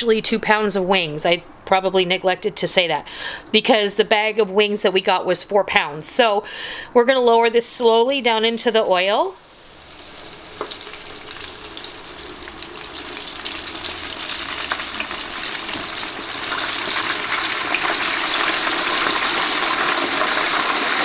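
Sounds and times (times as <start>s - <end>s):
chicken wings deep-frying in oil: 7.6s - 21.0s.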